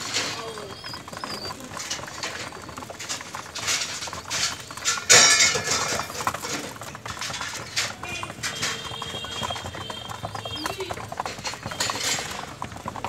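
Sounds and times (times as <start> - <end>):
pigeons pecking grain on floor: 0.0 - 13.0.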